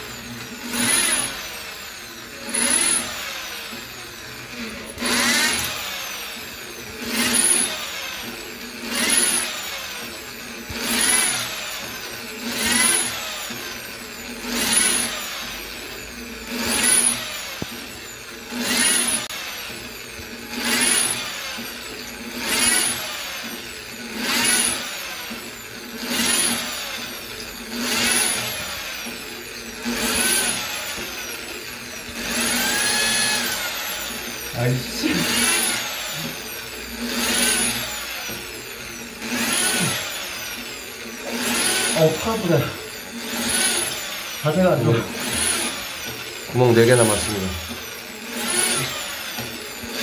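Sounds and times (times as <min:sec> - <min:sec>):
electric drill boring into tile: 0:00.0 - 0:50.0.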